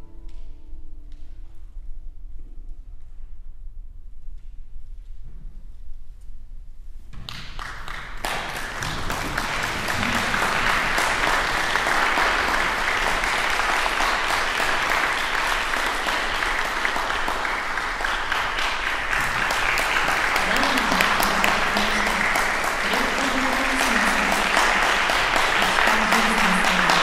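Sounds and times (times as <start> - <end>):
audience applauding: 7.3 - 27.0.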